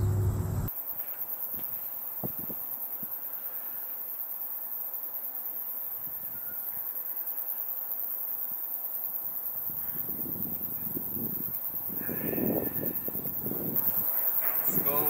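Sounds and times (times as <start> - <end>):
high-pitched insect chorus: 0.7 - 15.0
wind rustling bushes: 9.5 - 15.0.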